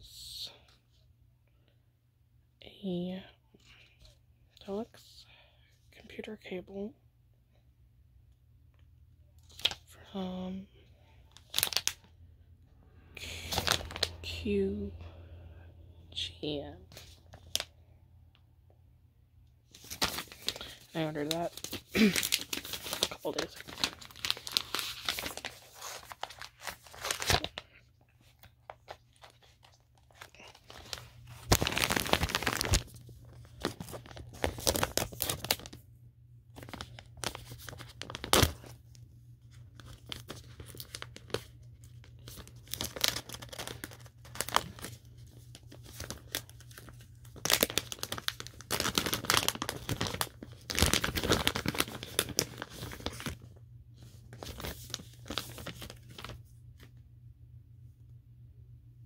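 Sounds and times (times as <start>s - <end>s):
plastic pouch rustling and ripping: 11.3s - 12.1s, 13.2s - 14.3s, 16.9s - 17.7s, 19.7s - 35.8s, 36.5s - 38.9s, 39.5s - 56.9s.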